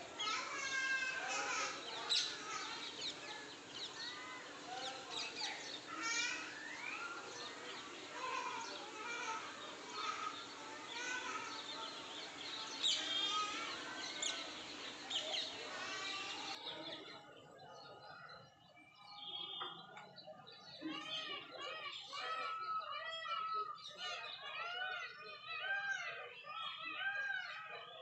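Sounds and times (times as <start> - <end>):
steady background hiss: 0.0 - 16.6
birds chirping: 0.0 - 28.0.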